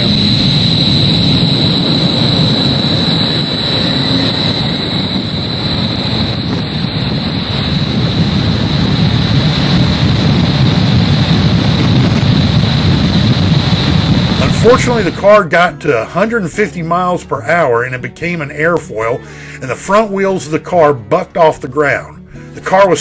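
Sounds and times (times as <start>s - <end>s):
wind tunnel fans rushing air: 0.0s - 17.7s
high whine: 0.0s - 23.0s.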